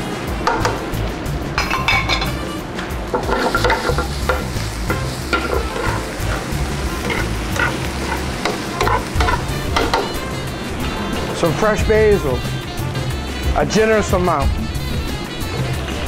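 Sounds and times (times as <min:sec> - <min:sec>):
vegetables sizzling in a pan: 0:03.1 - 0:10.5.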